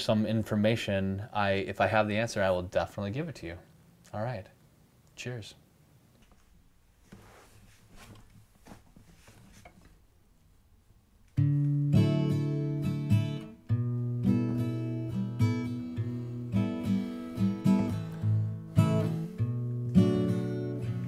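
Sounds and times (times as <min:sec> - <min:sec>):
acoustic guitar strummed chords: 0:11.4 - 0:21.0.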